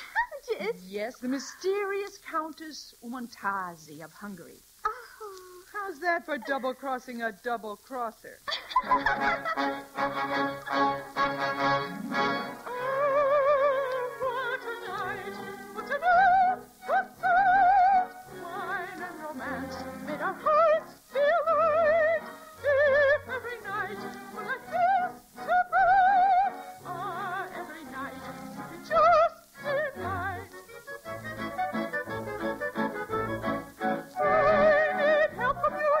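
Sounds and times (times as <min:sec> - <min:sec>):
soprano singing operatic notes: 0:08.8 - 0:36.0
orchestra playing: 0:09.2 - 0:13.1, 0:31.1 - 0:35.9.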